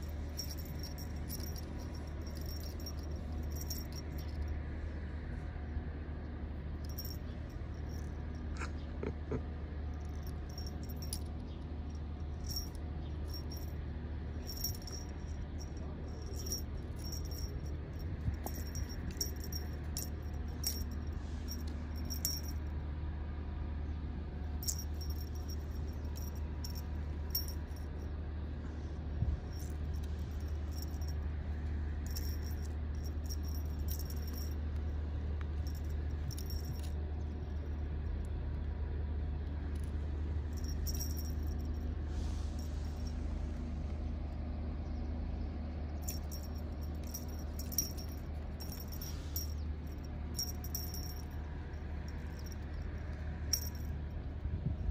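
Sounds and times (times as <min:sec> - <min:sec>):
toy jingling and rattling: 0:00.0 - 0:04.5, 0:06.8 - 0:08.7, 0:10.0 - 0:11.5, 0:12.3 - 0:13.8, 0:14.4 - 0:22.6, 0:24.6 - 0:28.0, 0:29.4 - 0:31.3, 0:32.0 - 0:34.7, 0:35.6 - 0:36.9, 0:40.5 - 0:41.9, 0:46.0 - 0:54.0
low hum: 0:00.0 - 0:54.9.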